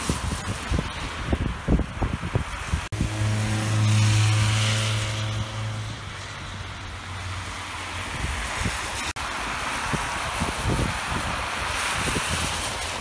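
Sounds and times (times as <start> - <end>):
vehicle engine hum: 0.1 - 13.0
tyre hiss on wet road: 6.2 - 13.0.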